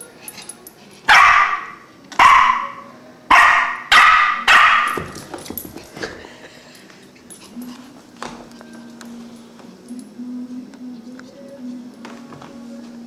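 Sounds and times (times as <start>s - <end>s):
puppy barking: 1.1s - 5.2s.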